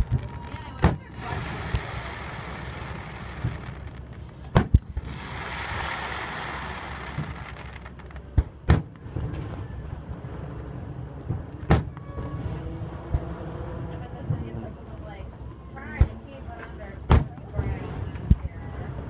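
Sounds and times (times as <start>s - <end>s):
firework shells bursting: 0.0s - 10.6s.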